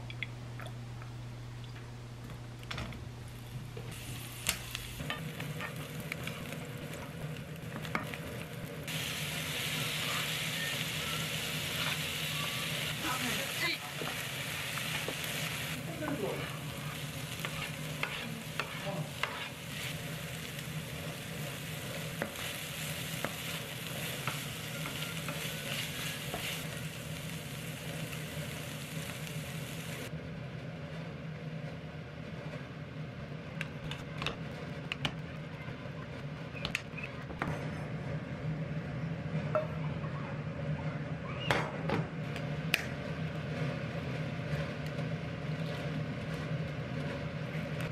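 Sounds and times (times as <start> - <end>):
food sizzling in a pan: 3.3 - 30.1
spatula scraping a pan: 14.9 - 26.8.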